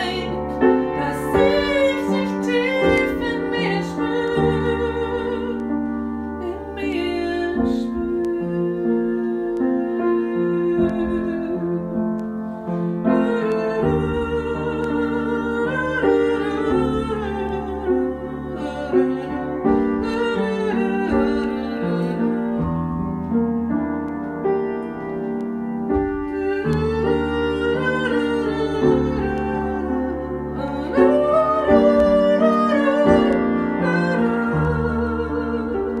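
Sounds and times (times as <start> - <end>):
woman singing: 0.0 - 22.9, 25.9 - 36.0
upright piano: 0.0 - 36.0.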